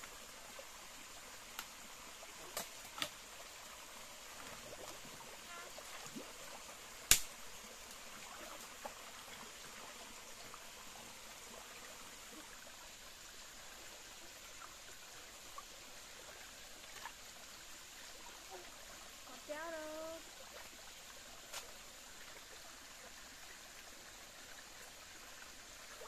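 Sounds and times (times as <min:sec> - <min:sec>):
stream trickling: 0:00.0 - 0:26.0
net pole clicks and knocks: 0:02.5 - 0:03.2, 0:07.1 - 0:07.4.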